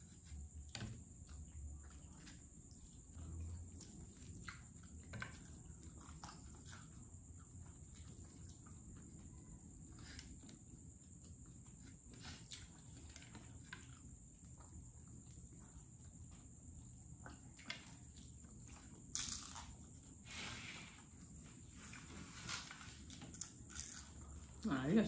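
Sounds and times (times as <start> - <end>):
chewing: 1.1 - 20.2.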